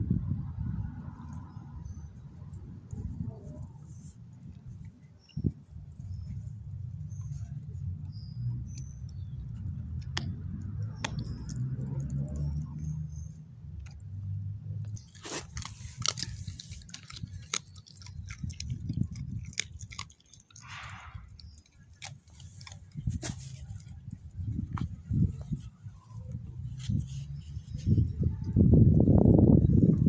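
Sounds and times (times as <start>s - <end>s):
dog crunching bone: 8.6s - 14.2s, 14.8s - 25.0s.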